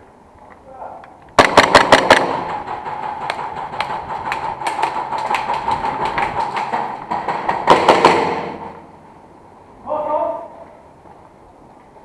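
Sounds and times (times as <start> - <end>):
airsoft gun full-auto shots: 1.4 - 3.2, 7.5 - 8.8.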